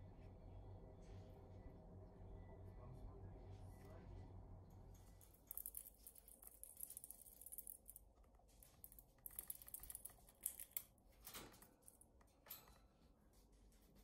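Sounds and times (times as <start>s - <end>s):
squirrel teeth clicking on nutshell: 5.4s - 8.1s, 8.7s - 10.9s.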